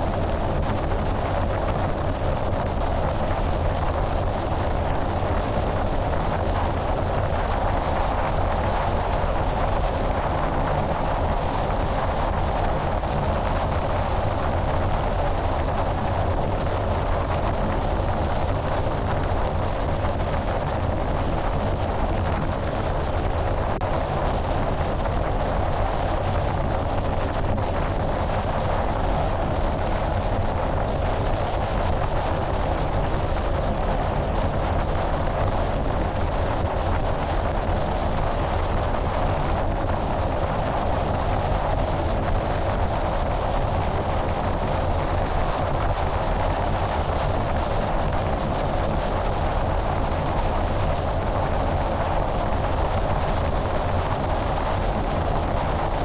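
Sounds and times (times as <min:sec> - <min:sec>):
wind rush: 0:00.0 - 0:56.0.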